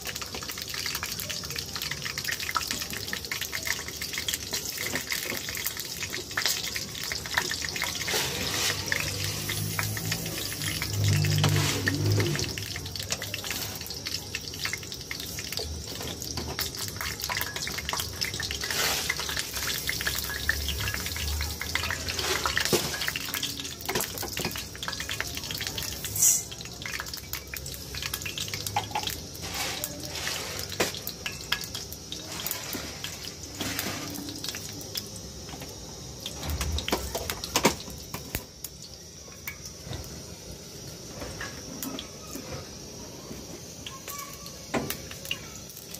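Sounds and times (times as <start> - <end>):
water splashing in a metal bowl: 0.0 - 42.8
grain rattling against metal: 7.3 - 24.8, 26.0 - 27.1, 28.3 - 34.5.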